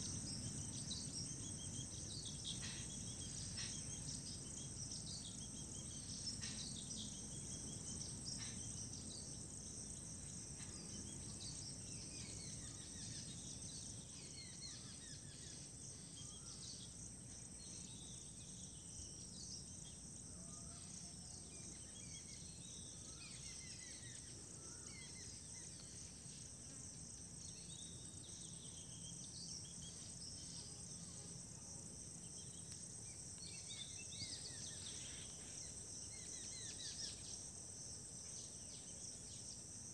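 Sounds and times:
high-pitched insect trill: 0:00.0 - 0:39.9.

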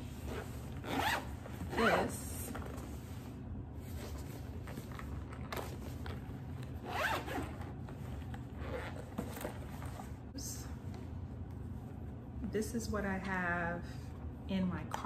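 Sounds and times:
zipper pulled open on case: 0:00.3 - 0:02.0, 0:06.8 - 0:07.8, 0:08.5 - 0:10.1.

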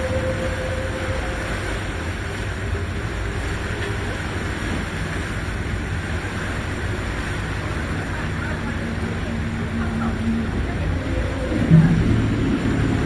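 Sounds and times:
boat engine drone: 0:00.0 - 0:13.0
churning wake: 0:00.0 - 0:13.0
wind: 0:00.0 - 0:13.0.

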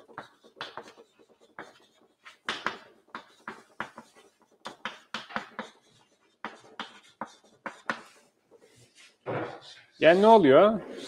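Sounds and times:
chalk tapping and scratching: 0:00.0 - 0:11.0.

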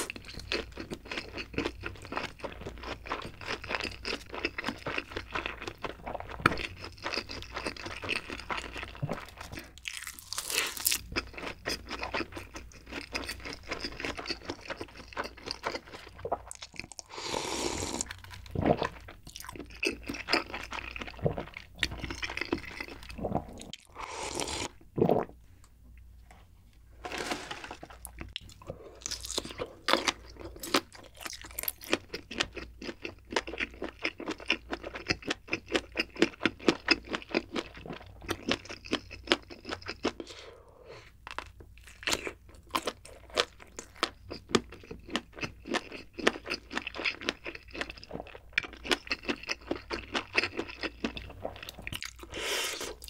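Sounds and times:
crunchy wet chewing: 0:28.1 - 0:40.3.

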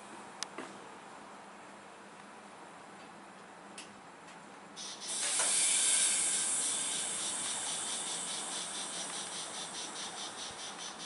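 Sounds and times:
compressed air hissing from train: 0:04.8 - 0:11.0.

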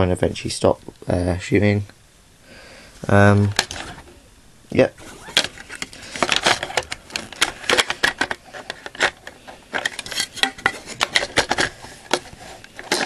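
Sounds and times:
plastic clicks and knocks: 0:05.4 - 0:13.0.

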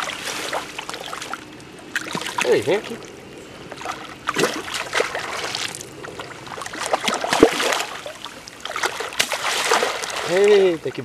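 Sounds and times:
fish splashing in water: 0:03.7 - 0:10.7.

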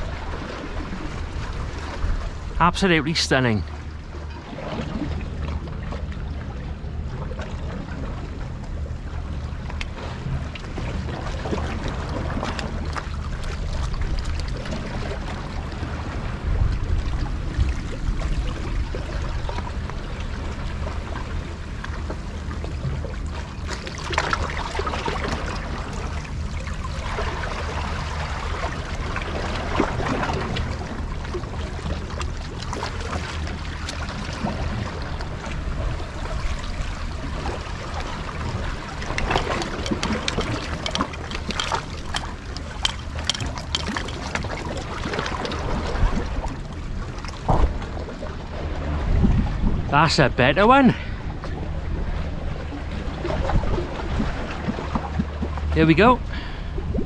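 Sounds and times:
waves lapping against rocks: 0:09.5 - 0:57.0
wind buffeting microphone: 0:48.7 - 0:49.9.

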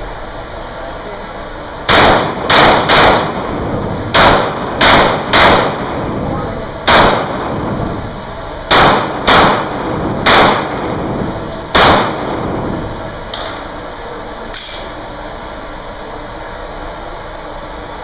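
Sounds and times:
handgun shots echoing indoors: 0:01.9 - 0:06.2, 0:06.8 - 0:08.0, 0:08.7 - 0:12.7.

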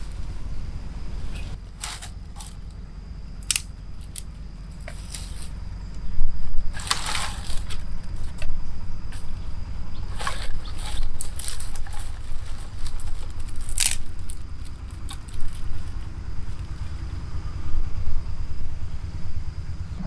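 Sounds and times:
dry twigs snapping and crackling: 0:01.8 - 0:02.8, 0:03.4 - 0:06.0, 0:06.7 - 0:08.5, 0:10.1 - 0:17.1.

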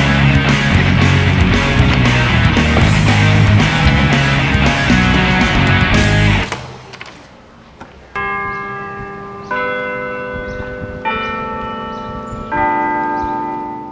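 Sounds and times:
clock tower bells chiming: 0:08.2 - 0:13.9.

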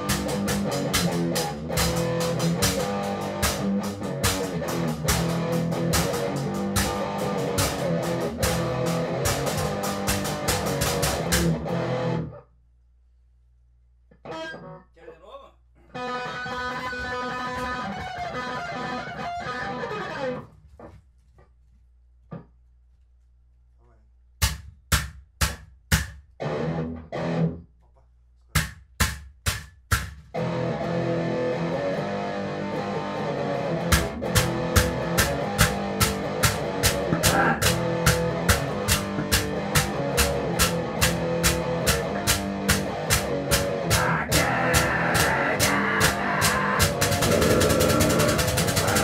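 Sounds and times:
separate drum hits: 0:00.0 - 0:11.7, 0:33.9 - 0:49.0
band music with guitar and drums: 0:00.0 - 0:12.4, 0:15.9 - 0:20.5, 0:30.3 - 0:49.0
dense wall of guitar: 0:00.0 - 0:12.5, 0:14.1 - 0:20.5, 0:26.4 - 0:27.7, 0:30.3 - 0:49.0.

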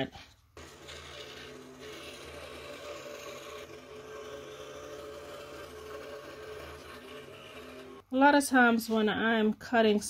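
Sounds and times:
scroll saw cutting wood: 0:00.6 - 0:08.0.

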